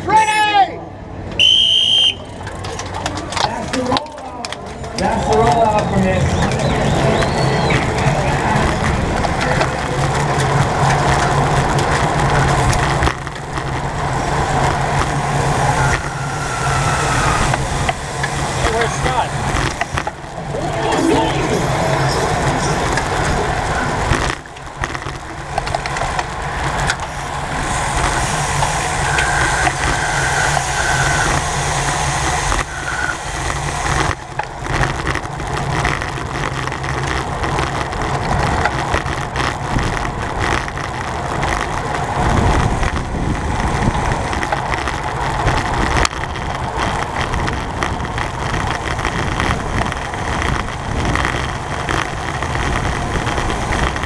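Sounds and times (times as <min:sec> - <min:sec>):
bicycle tyre rumble: 0:01.1 - 0:54.0
wind rush: 0:04.8 - 0:54.0
short high squeaks: 0:15.7 - 0:17.6, 0:32.4 - 0:33.2.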